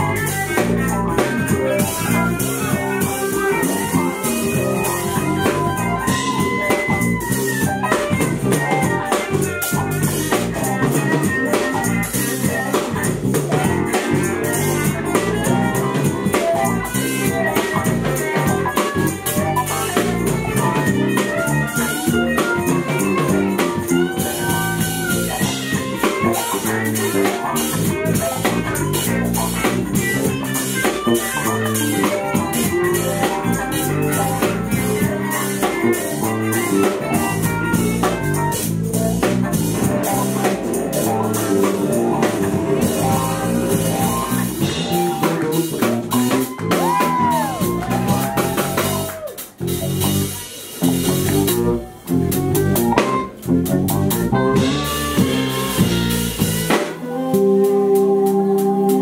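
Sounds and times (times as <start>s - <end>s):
drum kit: 0.0s - 59.0s
electric guitars: 0.0s - 59.0s
soprano saxophone: 51.5s - 59.0s.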